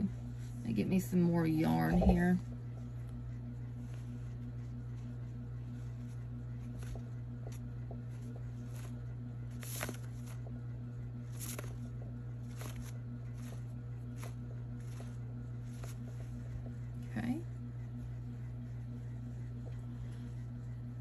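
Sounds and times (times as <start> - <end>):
steady low hum: 0.0 - 21.0
yarn clicks and rustles: 5.9 - 10.6, 11.2 - 16.6.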